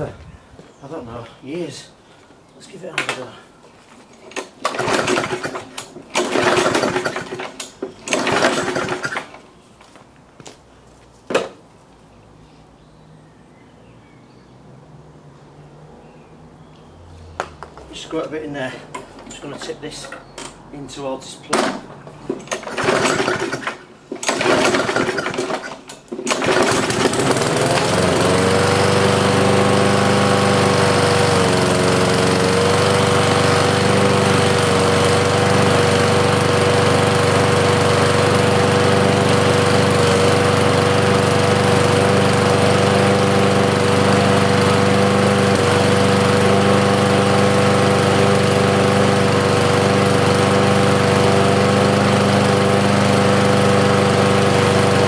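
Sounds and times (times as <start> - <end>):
lawnmower engine running: 4.2 - 9.4, 21.5 - 55.0
lawnmower pull-start: 4.2 - 9.5, 21.5 - 55.0.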